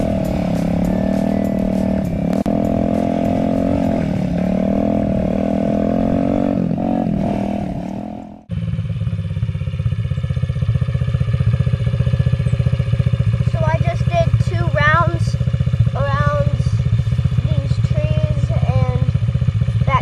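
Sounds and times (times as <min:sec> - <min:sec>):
dirt bike engine running: 0:00.0 - 0:20.0
engine idling putter: 0:08.2 - 0:20.0.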